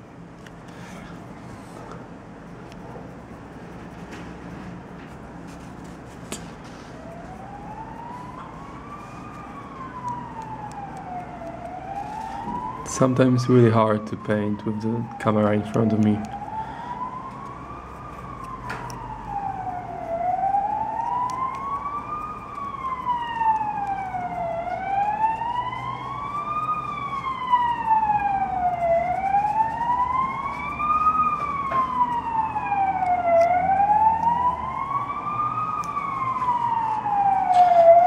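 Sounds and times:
siren wailing: 0:06.9 - 0:38.0.

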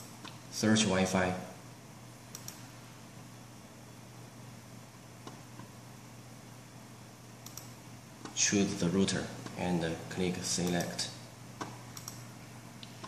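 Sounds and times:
steady low hum: 0:00.0 - 0:13.0
computer mouse clicks: 0:02.3 - 0:02.7, 0:05.2 - 0:05.7, 0:07.4 - 0:08.4, 0:10.6 - 0:11.0, 0:11.6 - 0:12.2.

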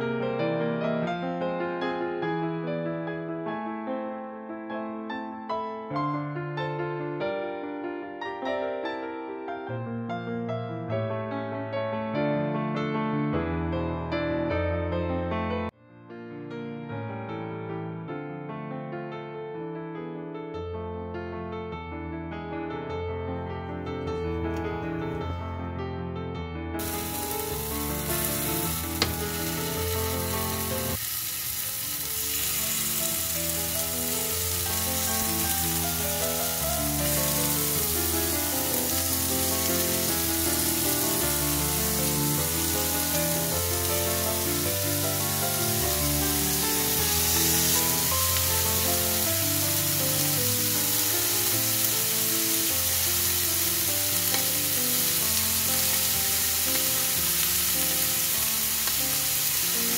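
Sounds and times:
background music: 0:26.8 - 0:31.0, 0:31.6 - 0:59.9
chicken sizzling in a hot pan: 0:26.8 - 0:59.9.

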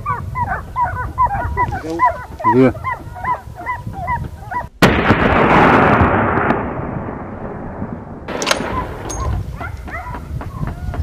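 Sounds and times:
dogs baying: 0:00.0 - 0:04.7, 0:08.6 - 0:11.0
gunshot with rolling echo: 0:04.8 - 0:09.7.

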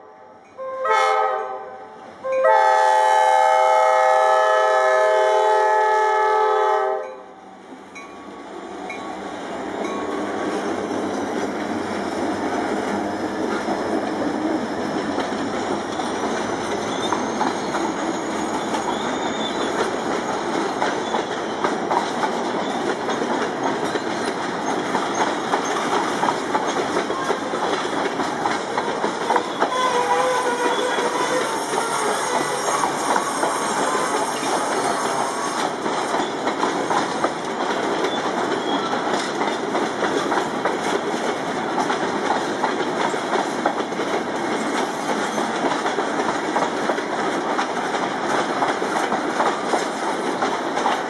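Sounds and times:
locomotive horn blowing: 0:00.0 - 0:07.3, 0:29.6 - 0:35.6
steel wheels rumbling on rail: 0:00.4 - 0:51.0
clicks over rail joints: 0:19.6 - 0:51.0.

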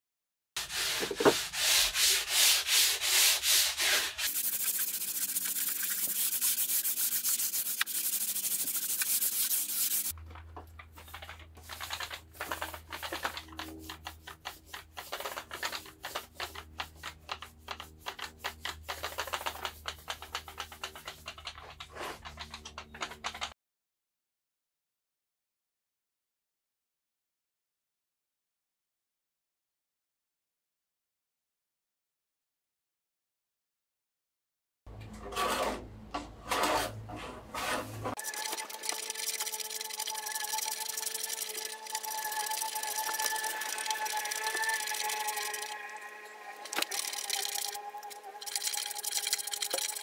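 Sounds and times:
hand sanding wood: 0:00.6 - 0:10.1, 0:11.6 - 0:21.4, 0:37.6 - 0:45.7.

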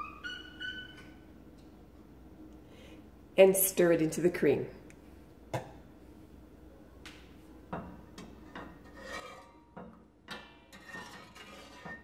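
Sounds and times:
ladle scraping metal pot: 0:08.4 - 0:12.0.

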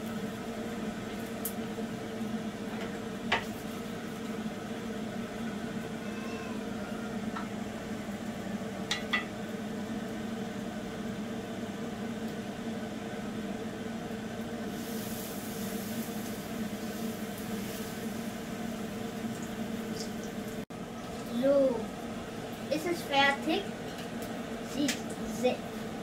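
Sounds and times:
batter sizzling in hot oil: 0:00.0 - 0:26.0
fritters frying in oil: 0:07.1 - 0:26.0.

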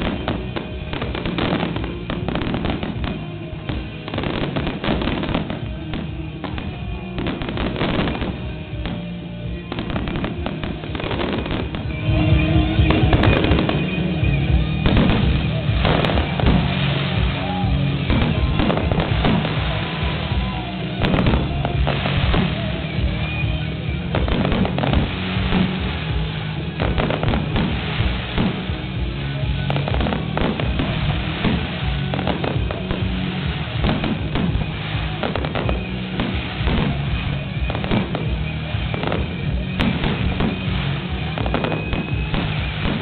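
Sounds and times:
music: 0:00.0 - 0:43.0
firework shells bursting: 0:24.1 - 0:43.0.

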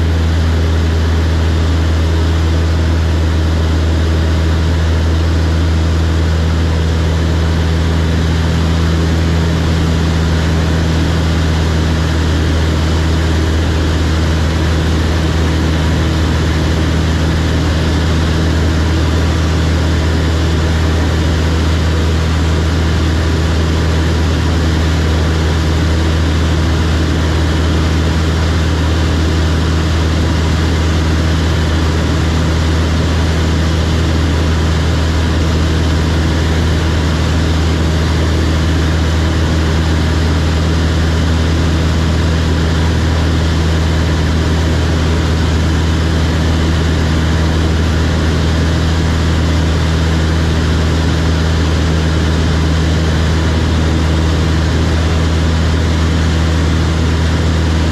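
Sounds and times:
propeller plane engine droning: 0:00.0 - 0:57.9.

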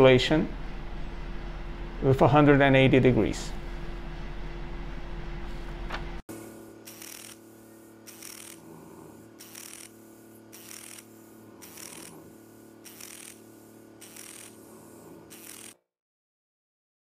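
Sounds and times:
motorized handpiece humming: 0:03.5 - 0:15.8
short hissy whir: 0:06.8 - 0:15.8.

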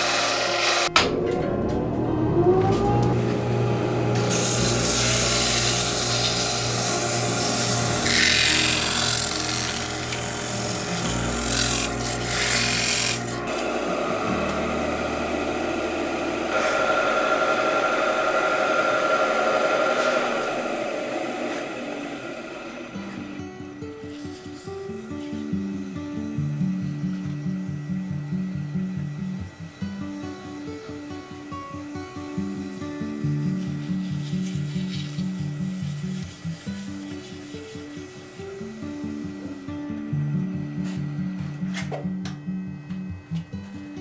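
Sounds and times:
wood lathe motor humming: 0:00.0 - 0:44.0
sandpaper sanding wood: 0:04.3 - 0:13.6, 0:33.2 - 0:38.8.

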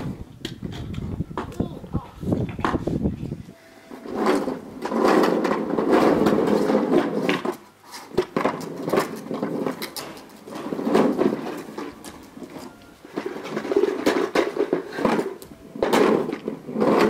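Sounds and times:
plastic wheels rolling on tiles: 0:03.9 - 0:17.0.

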